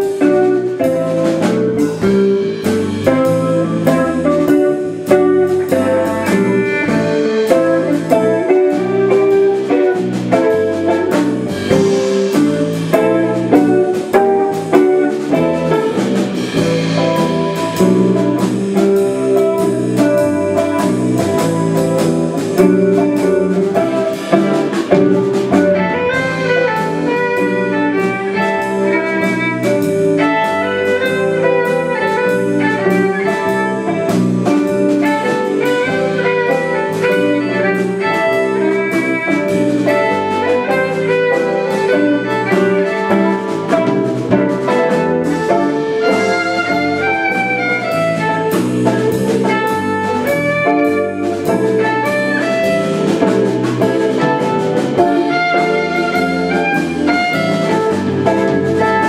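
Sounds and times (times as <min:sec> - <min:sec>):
drum kit: 0:00.0 - 0:59.0
jazz guitar: 0:00.0 - 0:59.0
violin: 0:00.0 - 0:59.0.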